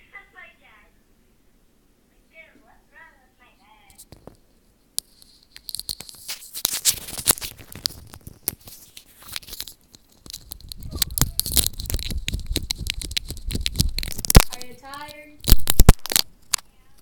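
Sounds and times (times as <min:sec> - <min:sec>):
plastic bottle crinkling: 0:05.0 - 0:16.7.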